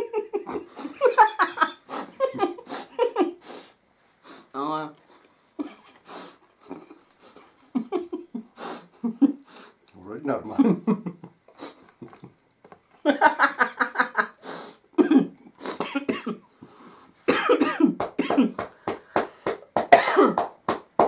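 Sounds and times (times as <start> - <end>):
woman laughing: 0.0 - 3.4, 13.1 - 14.4
woman coughing: 15.0 - 16.4, 17.3 - 18.6, 19.9 - 20.4.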